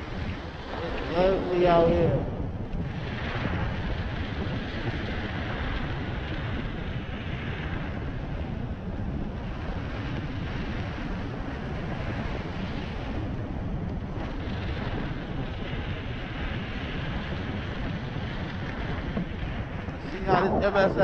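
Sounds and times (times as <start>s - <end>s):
wind on microphone: 0.0s - 21.0s.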